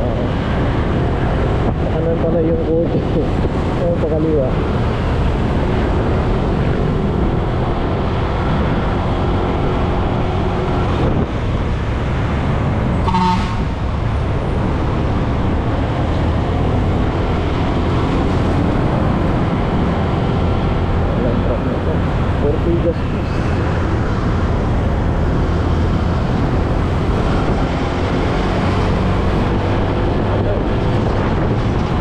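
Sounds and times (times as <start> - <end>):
road noise: 0.0 - 32.0
wind: 0.0 - 32.0
horn toot: 13.0 - 13.8.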